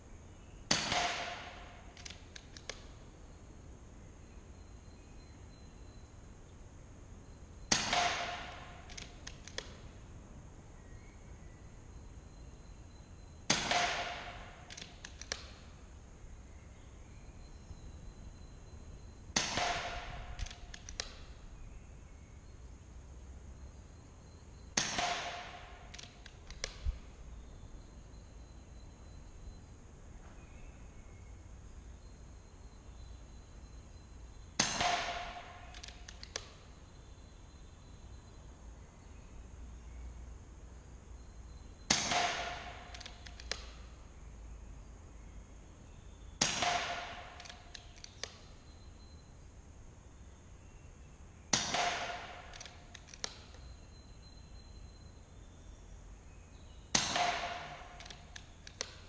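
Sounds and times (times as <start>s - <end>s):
air rifle shots: 0.7s - 2.9s, 7.7s - 10.0s, 13.5s - 15.7s, 19.3s - 21.4s, 24.8s - 27.0s, 34.6s - 36.7s, 41.9s - 43.8s, 46.4s - 48.4s, 51.5s - 53.6s, 56.9s - 59.0s
rifle action clicks: 0.7s - 3.0s, 7.7s - 9.8s, 13.5s - 15.6s, 19.4s - 21.4s, 24.8s - 27.0s, 34.6s - 36.7s, 41.9s - 43.8s, 46.4s - 48.5s, 51.5s - 53.8s, 56.9s - 59.0s
faint clicks: 35.7s - 36.6s, 58.0s - 59.0s.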